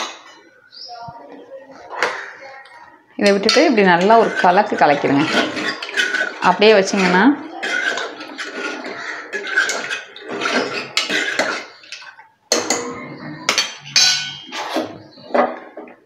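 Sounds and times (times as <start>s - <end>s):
ladle scraping a pot: 3.2s - 16.0s
sharp metal clanks: 12.5s - 14.7s.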